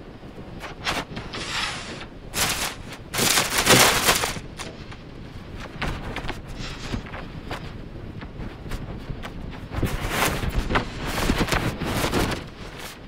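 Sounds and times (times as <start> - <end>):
fur brushing microphone: 1.2 - 4.7.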